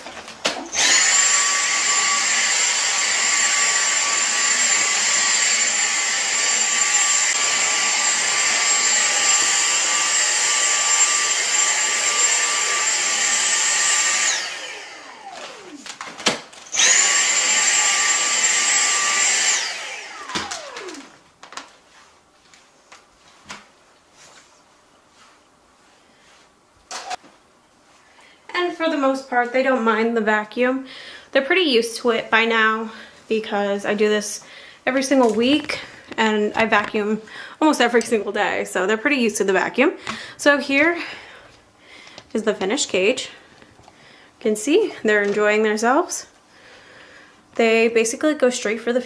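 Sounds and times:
stick vacuum cleaner whine: 0:00.1 - 0:21.7.

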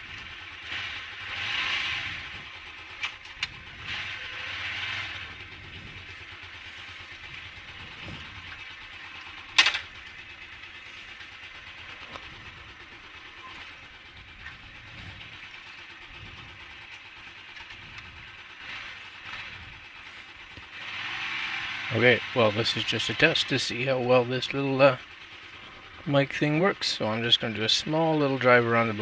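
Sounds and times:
motorcycle engine idling: 0:00.0 - 0:29.0.

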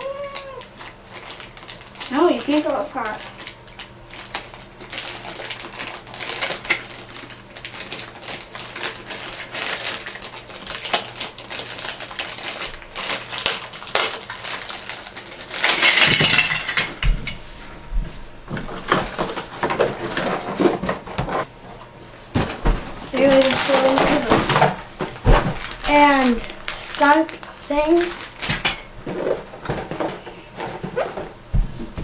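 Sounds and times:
plastic packaging crinkling: 0:00.0 - 0:16.8, 0:22.4 - 0:30.0
plastic toy parts rattling: 0:23.2 - 0:24.6
dull thumps: 0:30.8 - 0:32.0.

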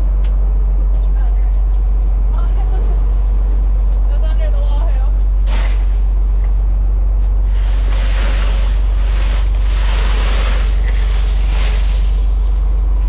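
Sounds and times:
boat engine droning: 0:00.0 - 0:13.0
wind: 0:00.0 - 0:13.0
rushing hiss: 0:05.4 - 0:05.9, 0:07.5 - 0:12.5
sea noise: 0:07.5 - 0:12.4.

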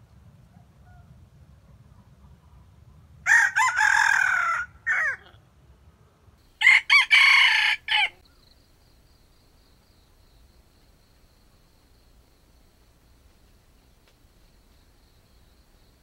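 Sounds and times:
rooster crowing: 0:03.2 - 0:05.3, 0:06.6 - 0:08.2.

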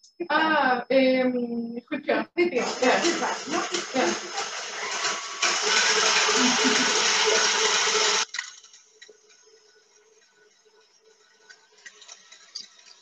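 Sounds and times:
stand mixer whisking in metal bowl: 0:02.6 - 0:08.7, 0:10.2 - 0:13.0.

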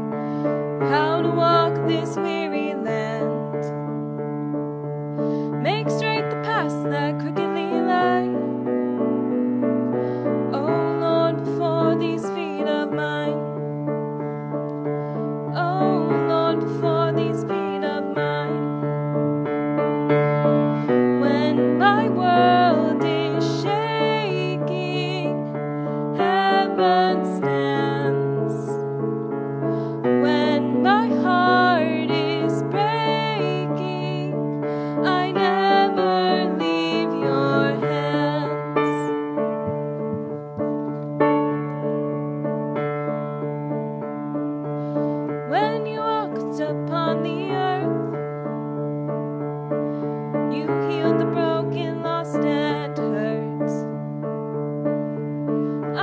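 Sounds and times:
grand piano: 0:00.0 - 0:56.0
woman singing with vibrato: 0:00.9 - 0:03.4, 0:05.6 - 0:08.4, 0:10.6 - 0:13.4, 0:15.5 - 0:18.8, 0:21.2 - 0:25.3, 0:26.1 - 0:28.8, 0:30.2 - 0:39.1, 0:45.5 - 0:47.9, 0:50.5 - 0:53.8.

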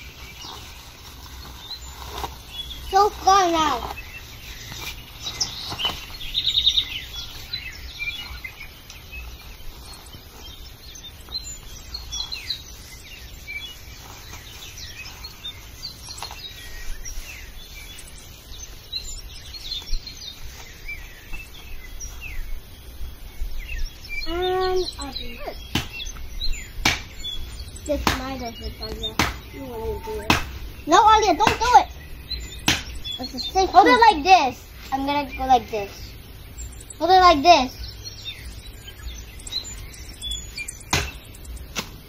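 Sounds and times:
birds chirping: 0:00.0 - 0:42.0
rapid high bird trill: 0:23.6 - 0:41.8.

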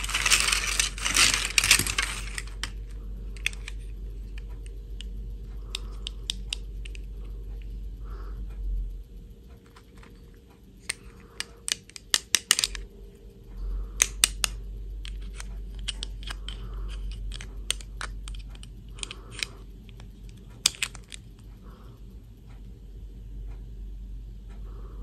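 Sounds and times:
plastic pieces clicking together: 0:00.0 - 0:05.1, 0:05.7 - 0:07.1, 0:10.8 - 0:12.8, 0:14.0 - 0:21.4.

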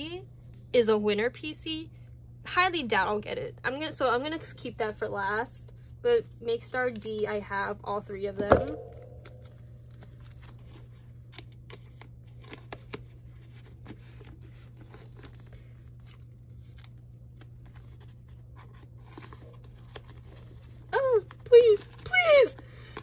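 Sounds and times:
steady low hum: 0:00.0 - 0:21.5
photocards and plastic sleeves rustling: 0:09.2 - 0:23.0.

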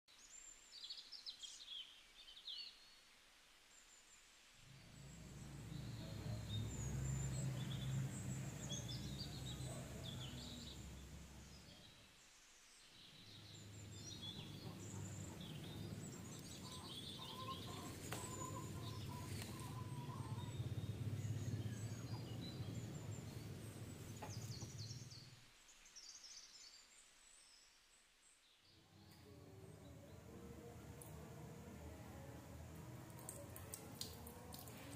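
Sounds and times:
steady low hum: 0:04.6 - 0:11.8
small birds chirping: 0:04.7 - 0:34.9.

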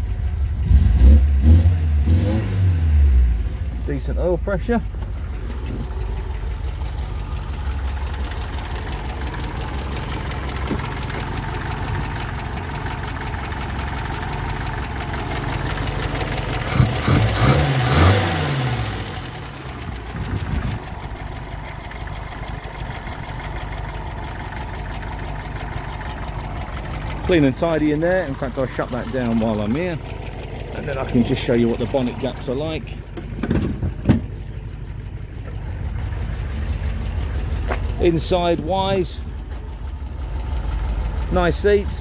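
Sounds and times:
car engine idling: 0:00.0 - 0:42.0
engine revs blipped: 0:00.6 - 0:03.6, 0:16.6 - 0:19.6.

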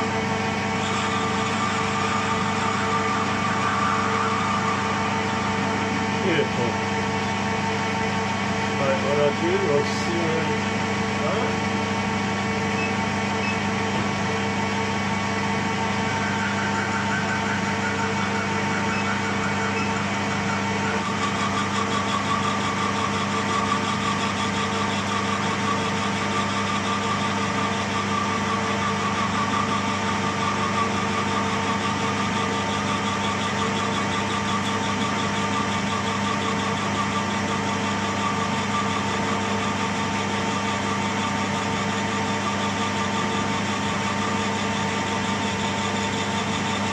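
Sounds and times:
metal lathe running: 0:00.0 - 0:46.9
higher steady tone: 0:00.8 - 0:07.4.

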